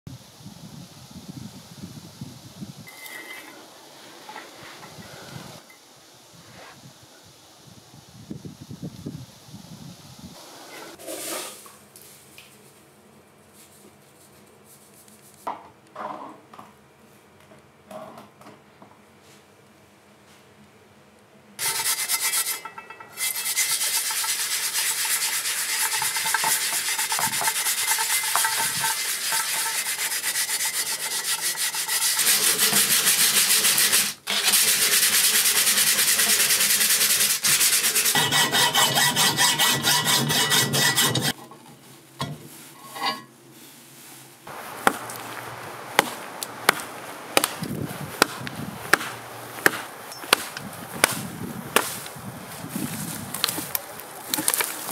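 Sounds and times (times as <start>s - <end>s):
sponge scraping steel blade: 21.6s - 41.4s, 42.7s - 43.3s
mattock chopping into wood: 44.8s - 45.2s, 46.0s - 52.0s.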